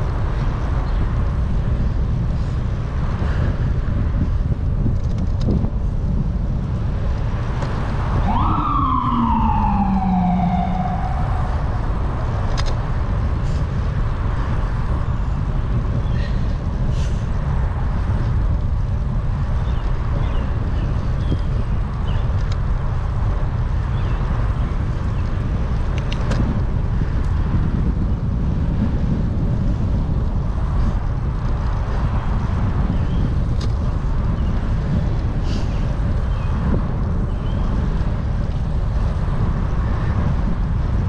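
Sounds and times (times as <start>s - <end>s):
wind rumble on microphone: 0.0s - 41.0s
siren wail: 8.1s - 12.5s.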